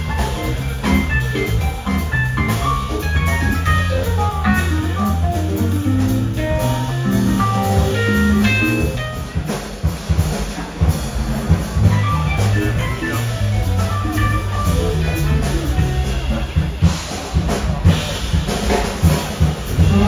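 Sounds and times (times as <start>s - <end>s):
live band playing: 0.0s - 20.0s.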